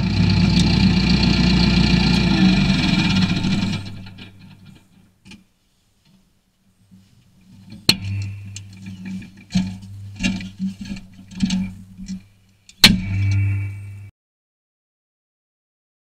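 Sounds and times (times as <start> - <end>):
low steady hum: 0.0 - 14.1
knocks and rustling: 6.9 - 14.1.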